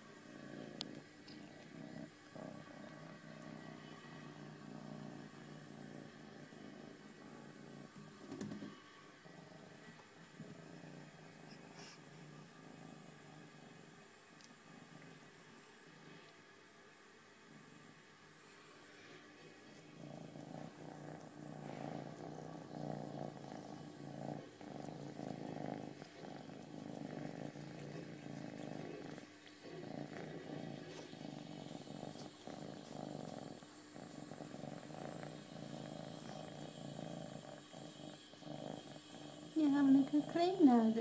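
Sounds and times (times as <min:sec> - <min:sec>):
cat purring: 0:00.0 - 0:41.0.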